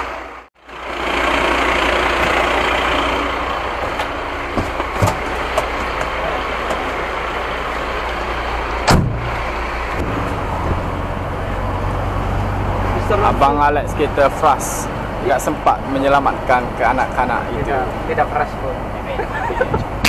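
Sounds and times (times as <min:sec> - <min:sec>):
fire engine idling: 0:00.0 - 0:20.0
cab door slamming: 0:08.8 - 0:09.3.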